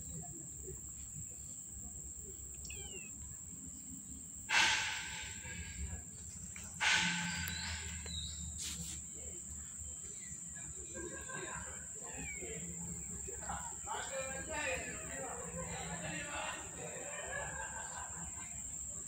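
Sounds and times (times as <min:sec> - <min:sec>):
insect drone: 0:00.0 - 0:19.0
loud hiss-like noises: 0:00.0 - 0:19.0
bird chirps: 0:02.2 - 0:03.3, 0:04.1 - 0:08.6.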